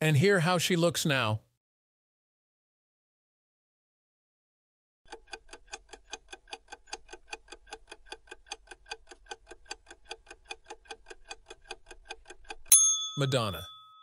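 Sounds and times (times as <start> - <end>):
fast clock ticking: 5.1 - 12.7.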